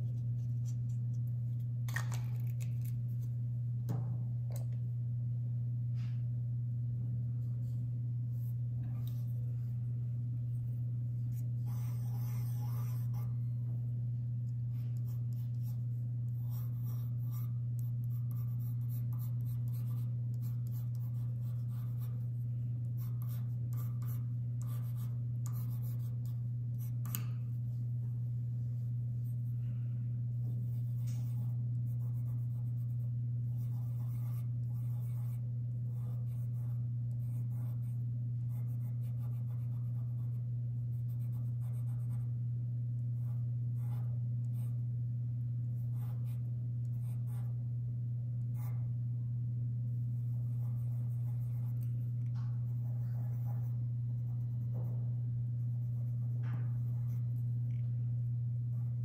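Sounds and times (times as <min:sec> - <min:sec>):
steady low hum: 0:00.0 - 0:59.0
pencil scratching on paper: 0:11.3 - 0:13.3, 0:14.8 - 0:22.2, 0:23.0 - 0:27.2, 0:30.6 - 0:40.4, 0:50.5 - 0:52.0, 0:52.7 - 0:55.0, 0:55.8 - 0:57.2.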